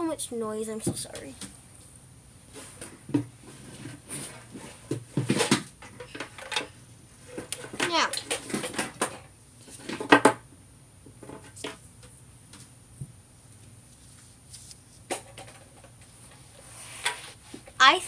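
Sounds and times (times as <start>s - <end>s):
objects knocking and clattering: 2.8s - 12.1s, 15.0s - 16.4s.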